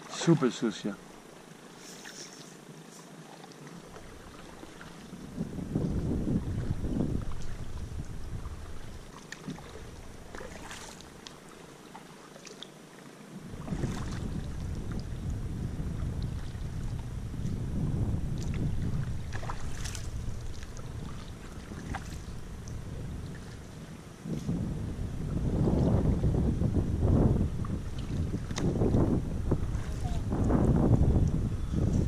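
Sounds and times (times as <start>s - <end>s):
wind buffeting microphone: 3.9s - 11.2s, 13.4s - 32.0s
canoe splashes and knocks: 5.9s - 12.6s, 13.5s - 15.1s, 18.3s - 22.4s, 27.6s - 30.5s.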